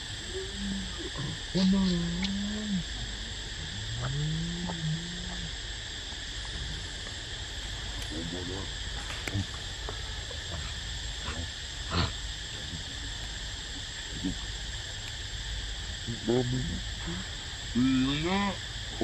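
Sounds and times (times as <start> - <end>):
high insect buzz: 0.0 - 19.0
monkey calls: 0.2 - 2.6, 17.0 - 18.6.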